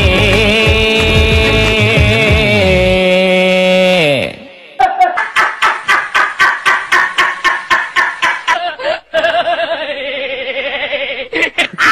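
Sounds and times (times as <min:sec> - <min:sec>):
man laughing heartily: 0:04.8 - 0:11.9.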